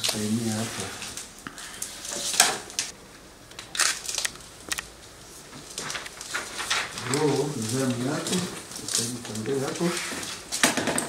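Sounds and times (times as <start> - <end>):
paper rustling: 3.7 - 10.6.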